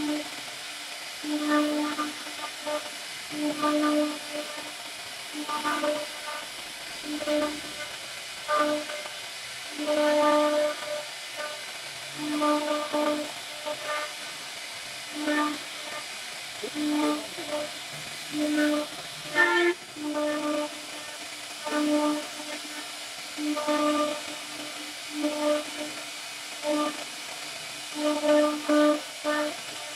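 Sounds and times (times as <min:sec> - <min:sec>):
router spindle hissing: 0:00.0 - 0:29.9
router whining tone: 0:16.6 - 0:21.0.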